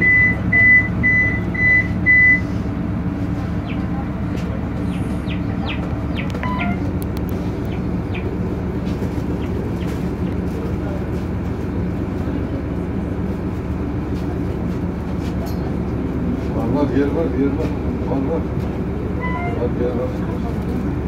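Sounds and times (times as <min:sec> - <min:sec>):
short electronic beeps: 0:00.0 - 0:02.5, 0:06.3 - 0:06.9
diesel bus engine idling: 0:00.0 - 0:21.0.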